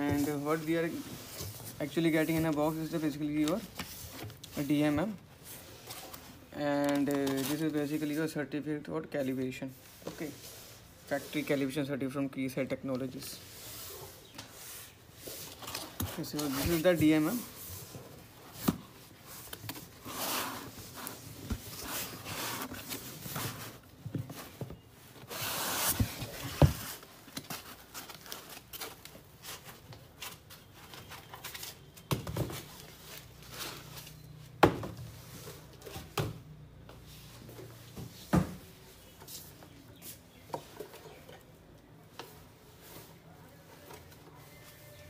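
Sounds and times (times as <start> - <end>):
foam and cardboard rubbing: 25.2 - 27.0.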